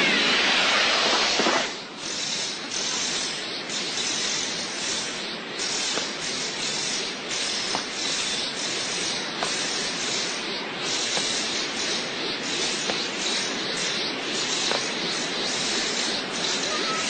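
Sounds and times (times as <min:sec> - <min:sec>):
energy rushing hiss: 0:00.0 - 0:17.0.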